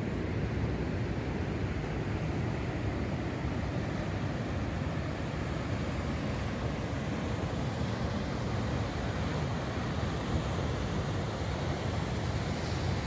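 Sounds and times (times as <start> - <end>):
sea surf washing ashore: 0.0 - 13.0.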